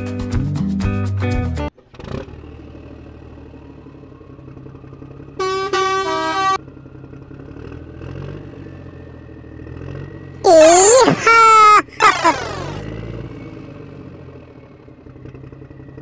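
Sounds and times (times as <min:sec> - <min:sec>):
vehicle horn honking: 0:05.4 - 0:06.6.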